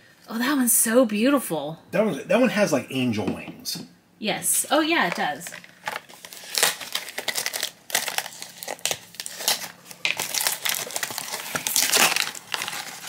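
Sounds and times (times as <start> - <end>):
packaging crinkling: 5.0 - 13.0.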